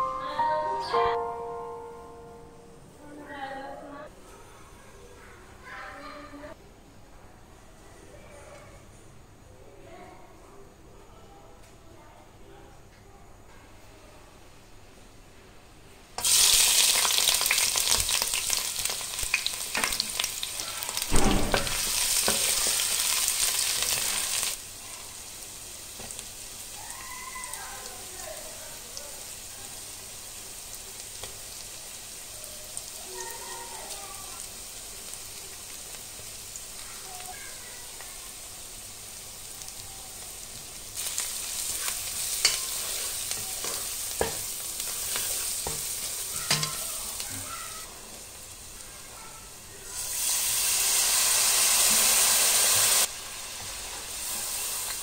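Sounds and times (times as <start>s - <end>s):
onions sizzling in hot oil: 16.2s - 55.0s.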